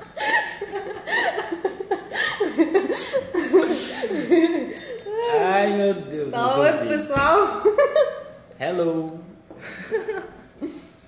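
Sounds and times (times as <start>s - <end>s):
woman laughing heartily: 0.0s - 4.8s, 9.6s - 10.9s.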